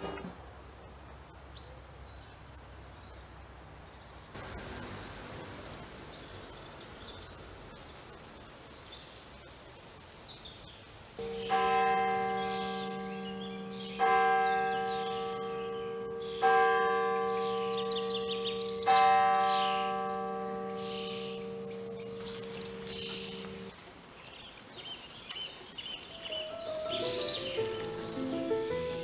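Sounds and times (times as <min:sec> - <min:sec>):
large bell tolling: 0:11.2 - 0:23.7
faint bird chirps: 0:24.3 - 0:29.0.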